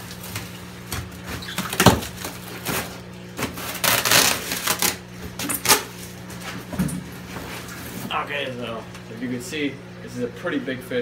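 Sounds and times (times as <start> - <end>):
water pouring and splashing: 0.0 - 2.7
plastic bags crinkling: 0.0 - 6.3.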